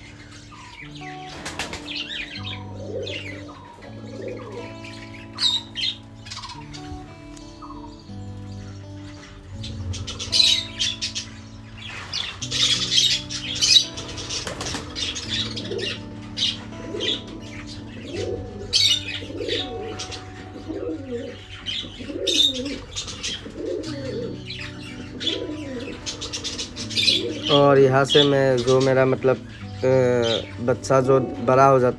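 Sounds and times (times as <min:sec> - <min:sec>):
budgerigars chirping: 0:00.0 - 0:31.9
soft background music: 0:00.0 - 0:31.9
wings fluttering: 0:01.2 - 0:02.2, 0:11.9 - 0:16.0.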